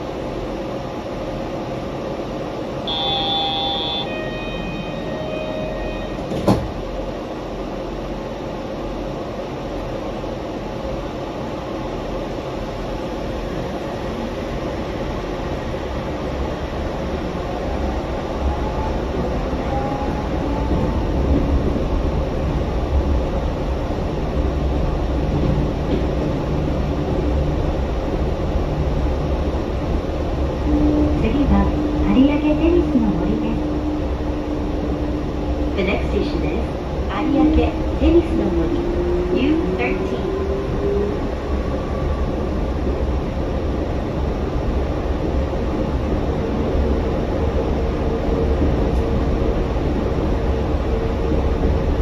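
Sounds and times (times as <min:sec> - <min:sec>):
train tyres rumbling: 0:12.2 - 0:52.0.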